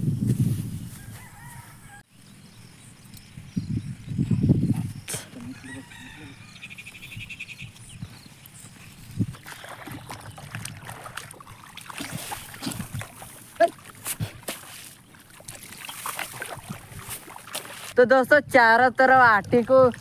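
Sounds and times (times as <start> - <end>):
rooster crowing: 1.0 - 2.1, 5.4 - 6.7.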